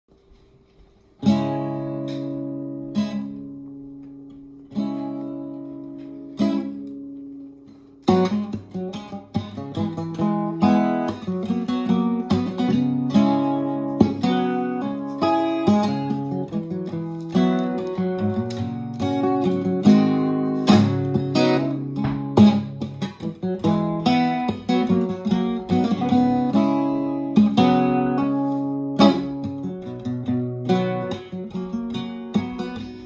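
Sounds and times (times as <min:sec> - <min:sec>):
acoustic guitar strumming: 0:00.2 - 0:33.0.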